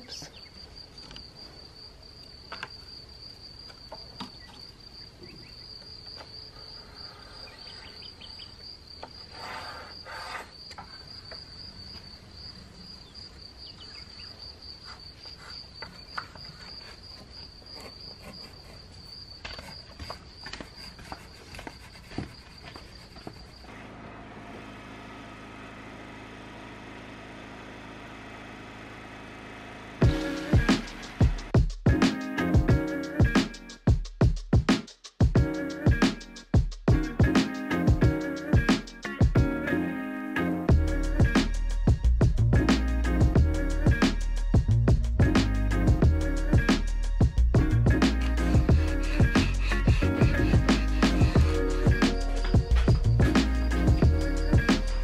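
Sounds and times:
cricket trilling: 0.0s - 23.7s, 48.3s - 55.0s
faint taps and scrapes: 19.4s - 23.5s
generator running hum: 23.7s - 31.6s, 47.6s - 55.0s.

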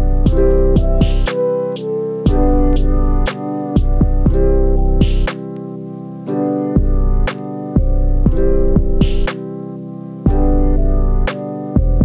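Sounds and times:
deep bass: 0.0s - 1.3s, 2.3s - 5.3s, 6.8s - 9.3s, 10.3s - 12.0s
background music with steady beat: 0.0s - 12.0s
keyboard chords: 0.0s - 12.0s.

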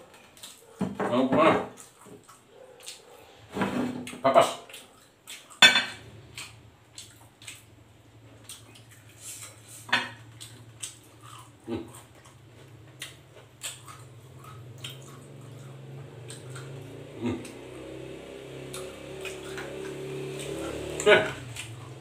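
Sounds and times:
mouth smacks while eating: 4.1s - 5.6s, 6.2s - 7.7s, 8.4s - 11.1s, 13.0s - 16.8s.

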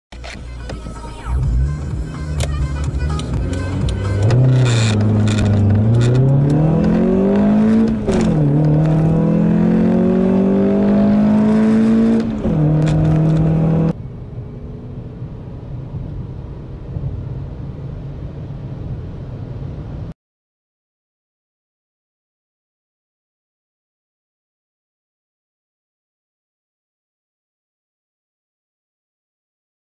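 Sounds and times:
road noise: 0.1s - 20.2s
car engine accelerating: 0.2s - 20.0s.

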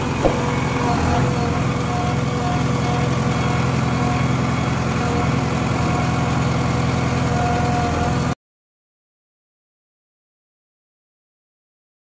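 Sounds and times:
diesel engine idling: 0.0s - 8.3s.

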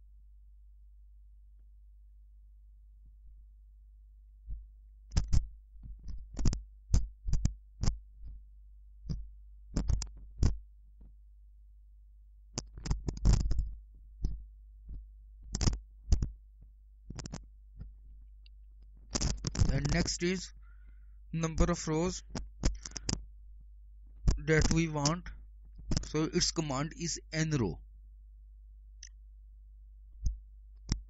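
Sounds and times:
computer keyboard typing: 9.8s - 10.5s.

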